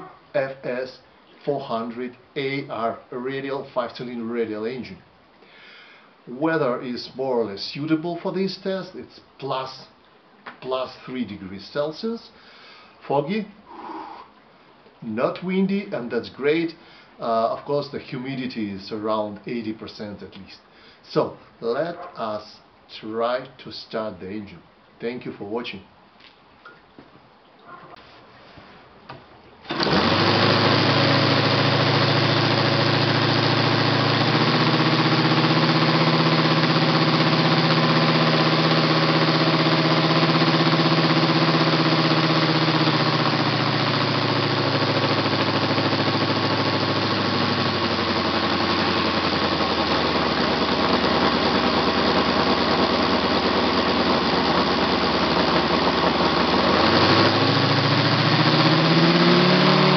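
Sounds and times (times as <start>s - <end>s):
model radial engine running: 29.7s - 59.9s.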